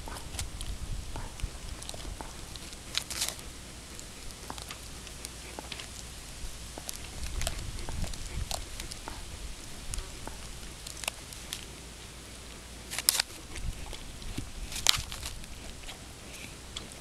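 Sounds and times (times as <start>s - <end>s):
dog gnawing a bone: 0.0s - 17.0s.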